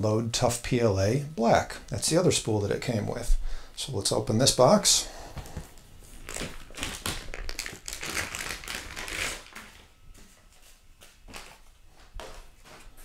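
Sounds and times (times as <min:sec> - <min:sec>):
plastic bag crinkling: 0:06.1 - 0:09.9.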